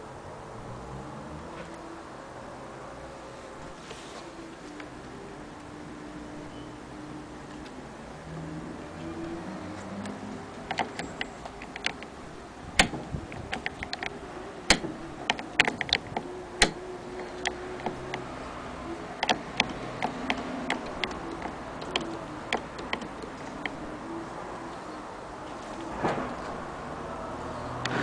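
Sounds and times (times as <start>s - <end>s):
clicks and knocks of handling: 10.0s - 12.2s, 12.8s - 18.3s, 19.2s - 23.9s.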